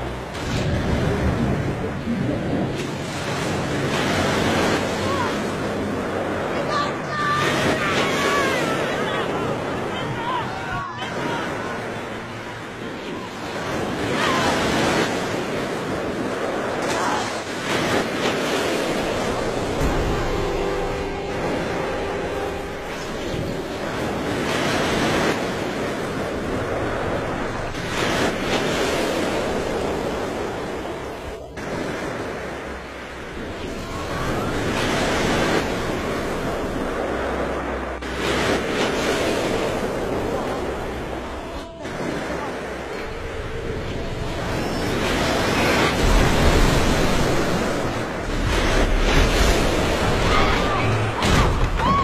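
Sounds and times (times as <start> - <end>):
rushing churning water: 0.0 - 52.0
deep rumbling: 18.4 - 34.8.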